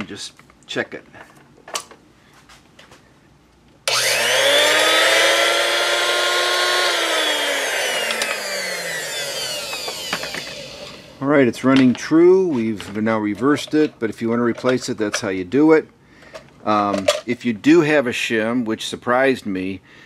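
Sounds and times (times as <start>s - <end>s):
grinding wheel motor whining: 3.9s - 11.2s.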